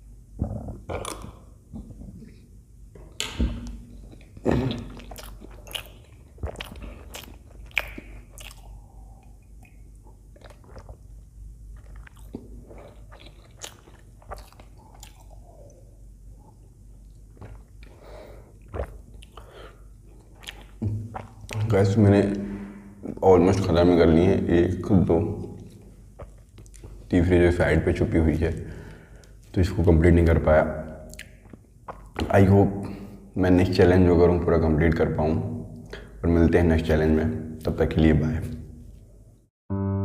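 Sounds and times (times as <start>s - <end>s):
wet chewing: 4.0s - 15.8s, 18.6s - 21.7s.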